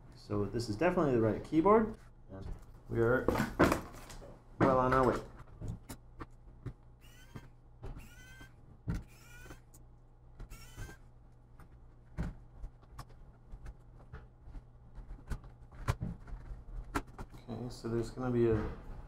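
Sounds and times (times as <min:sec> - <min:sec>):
short high squeaks rising in pitch: 0:07.0 - 0:09.7, 0:10.5 - 0:11.0.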